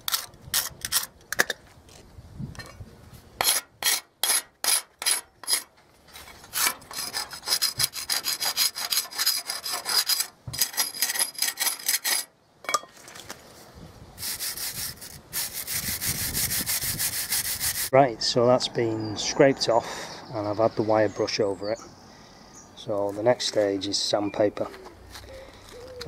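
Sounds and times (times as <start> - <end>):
wire brush scrubbing metal: 3.4 - 12.3, 14.2 - 17.9.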